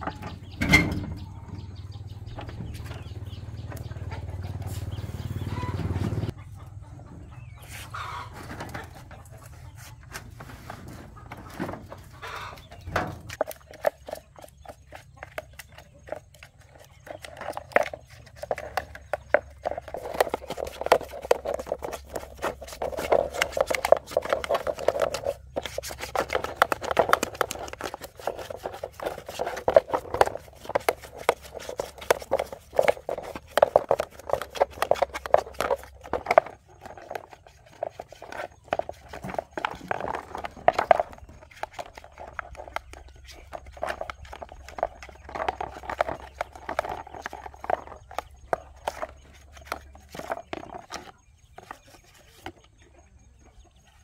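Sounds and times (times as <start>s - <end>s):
plastic parts knocking: 10.2s - 52.8s
brush scrubbing plastic: 12.3s - 52.6s.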